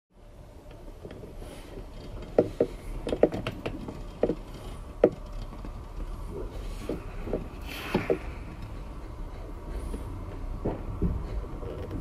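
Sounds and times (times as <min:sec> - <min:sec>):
railway carriage knocks and clanks: 0:00.7 - 0:12.0
low rumble: 0:03.8 - 0:12.0
short hiss: 0:07.6 - 0:08.4.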